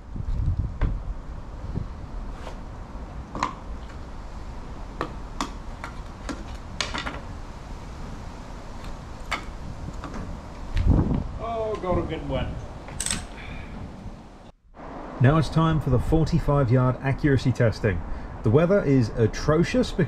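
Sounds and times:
wind on microphone: 0.0 - 2.4, 6.7 - 15.2.

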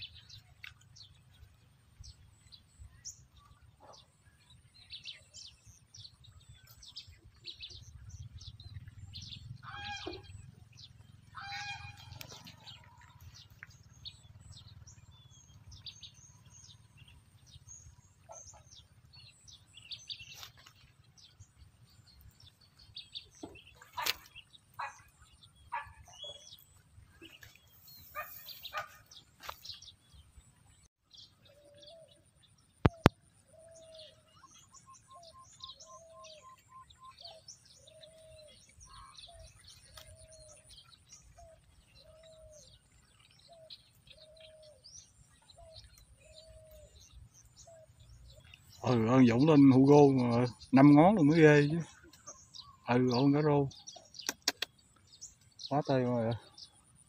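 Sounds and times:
birds chirping: 0.0 - 57.0
sharp clicks: 54.2 - 54.8.

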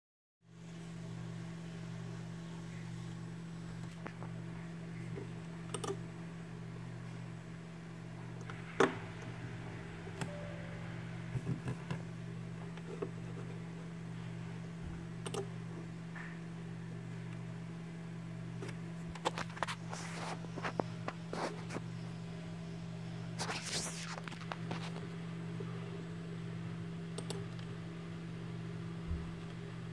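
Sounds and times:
computer humming: 0.5 - 29.9
computer mouse clicks: 5.7 - 6.0, 15.2 - 15.5, 27.2 - 27.7.

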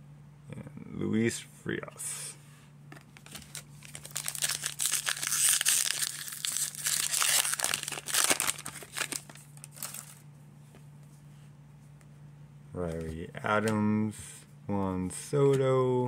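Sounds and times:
foil wrapper tearing and crinkling: 3.2 - 10.2.

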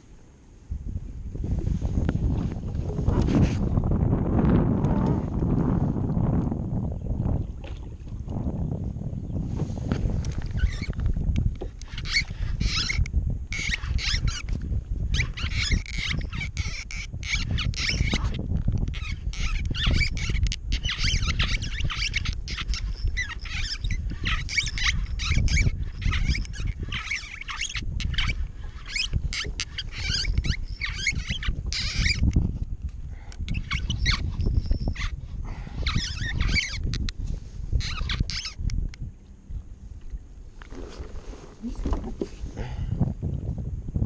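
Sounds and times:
wind rumble on microphone: 0.0 - 44.0
fishing reel whirring and clicking: 10.2 - 35.2, 35.8 - 39.1.

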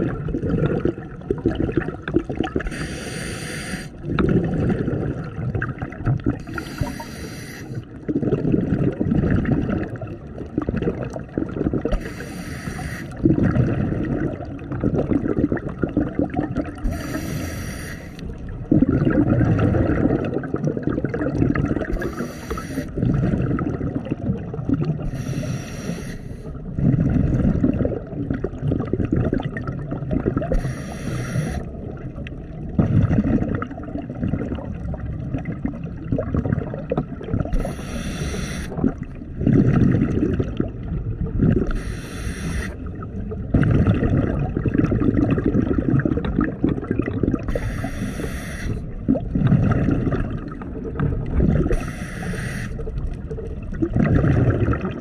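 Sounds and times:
exhaled air bubbling underwater: 0.0 - 55.0
regulator hissing inhales: 2.7 - 4.0, 6.5 - 7.9, 12.0 - 13.2, 16.9 - 18.2, 22.0 - 22.9, 25.0 - 26.5, 30.6 - 31.7, 37.6 - 38.8, 41.7 - 42.8, 47.5 - 48.9, 51.7 - 52.8.

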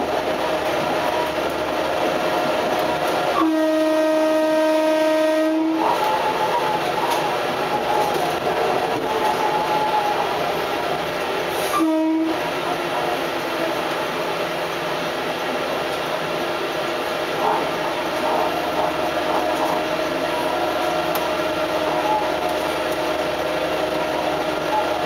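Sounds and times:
railcar running noise: 0.0 - 25.0
train horn blasts: 3.3 - 6.2, 11.6 - 12.7.

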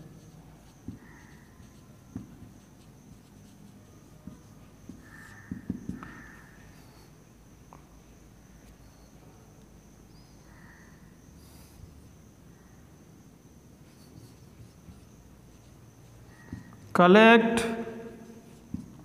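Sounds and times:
marker squeaking on whiteboard: 0.0 - 7.1, 13.8 - 17.0.

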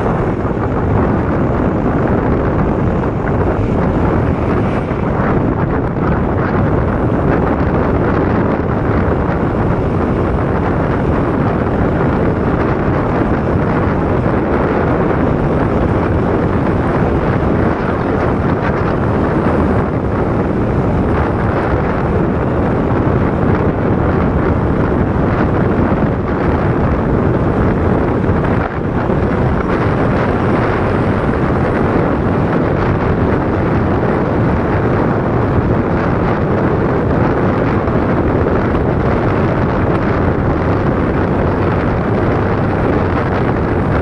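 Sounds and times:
vehicle road noise: 0.0 - 44.0
wind buffeting microphone: 0.0 - 44.0.

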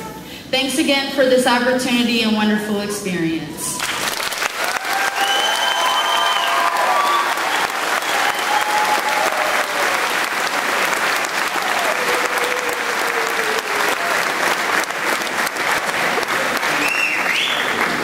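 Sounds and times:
audience applauding: 3.8 - 18.0.

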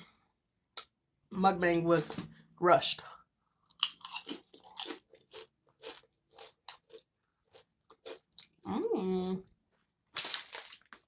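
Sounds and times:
chips crunching: 3.7 - 8.5, 9.7 - 11.0.

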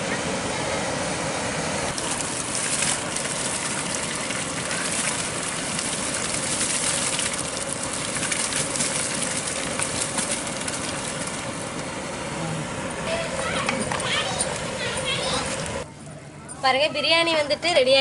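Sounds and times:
steady noisy background: 0.0 - 18.0
rice pouring into boiling liquid: 1.9 - 11.8.

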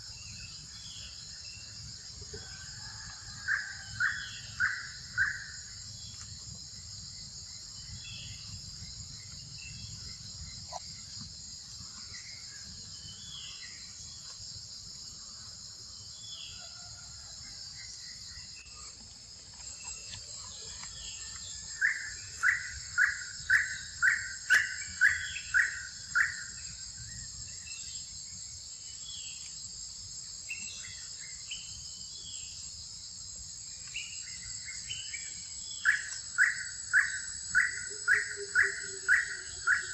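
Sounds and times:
insect chorus: 0.0 - 39.9
loud evenly spaced calls: 21.8 - 26.6, 35.8 - 39.9.

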